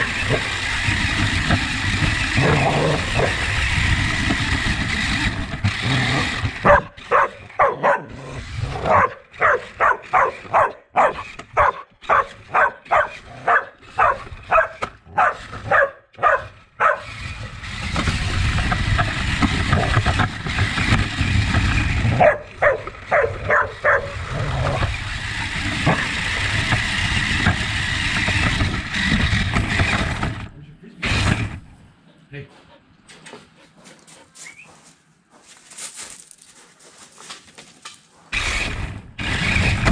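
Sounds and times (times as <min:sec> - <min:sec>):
small electric motor whirring: 0:00.0 - 0:31.6, 0:38.3 - 0:39.9
dog barking: 0:06.6 - 0:17.1, 0:22.2 - 0:24.2.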